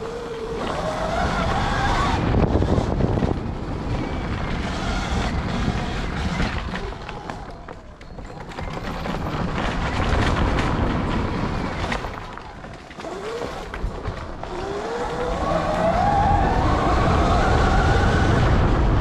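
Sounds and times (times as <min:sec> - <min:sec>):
wind rushing on microphone: 0:00.0 - 0:07.7, 0:13.7 - 0:19.0
dirt bike clatter and rattle: 0:02.3 - 0:15.4.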